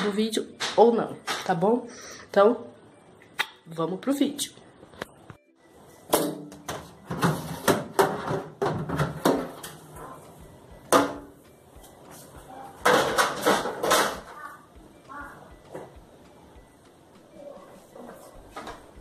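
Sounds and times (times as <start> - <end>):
refrigerator parts knocking and clattering: 6.1 - 9.9, 12.8 - 14.4.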